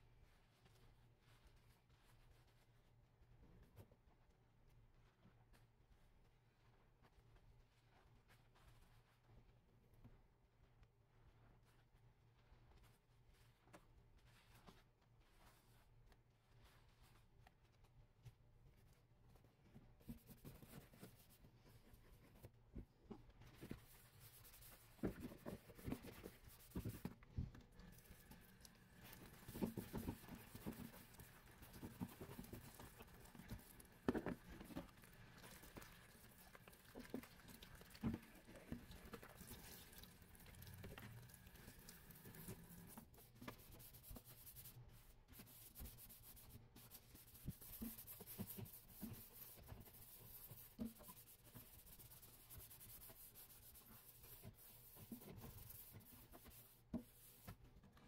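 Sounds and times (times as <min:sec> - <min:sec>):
sponge squelching in soapy water: 0:23.6 - 0:57.5.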